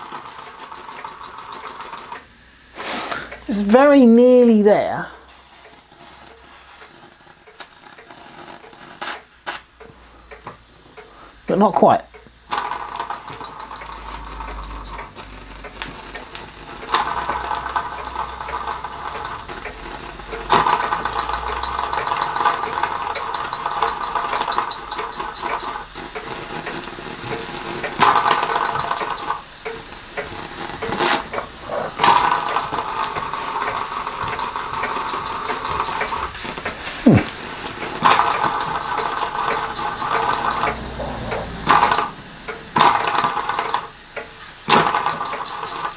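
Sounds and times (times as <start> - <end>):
sharp clicks: 0.0 - 2.3, 12.1 - 45.9
steam hissing: 0.0 - 45.9.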